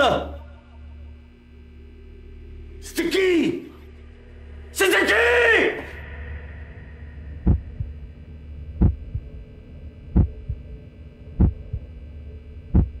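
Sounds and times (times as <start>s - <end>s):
steady low hum: 0.0s - 13.0s
heartbeat thumps: 7.3s - 8.1s, 8.7s - 9.5s, 10.1s - 12.0s, 12.7s - 13.0s.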